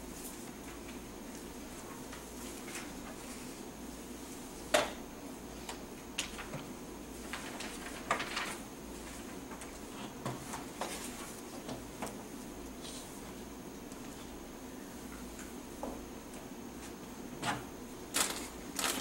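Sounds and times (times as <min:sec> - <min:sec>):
steady hum: 0:00.0 - 0:19.0
papers rustling: 0:06.2 - 0:11.5, 0:18.1 - 0:19.0.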